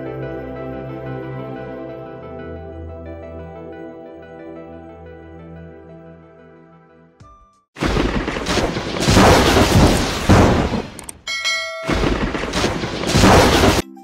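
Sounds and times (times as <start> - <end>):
explosion sound effect: 7.8 - 11.0, 11.9 - 13.9
bell-like chime: 11.3 - 12.2.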